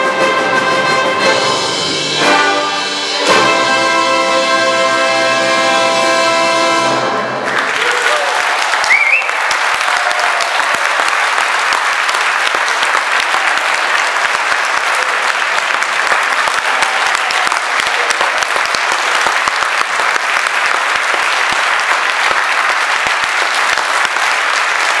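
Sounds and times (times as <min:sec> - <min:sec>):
orchestra chord: 0:00.0 - 0:07.4
audience applause: 0:07.3 - 0:25.0
rising whistle: 0:08.8 - 0:09.4.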